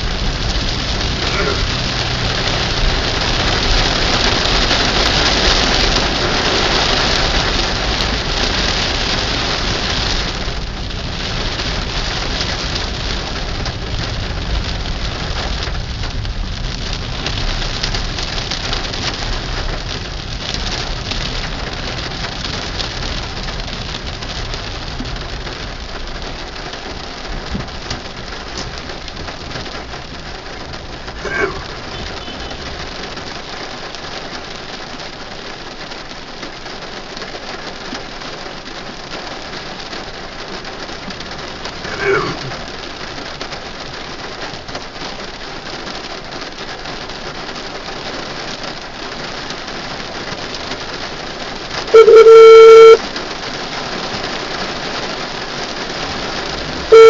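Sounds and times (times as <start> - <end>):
heavy rain on car windshield: 0.0 - 57.0
brief pitched sound: 52.0 - 53.0.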